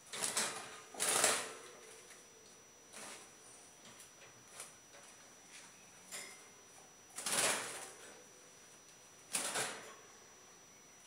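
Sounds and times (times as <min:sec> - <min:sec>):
rattling in wire birdcage: 0:00.1 - 0:01.6, 0:07.2 - 0:08.0.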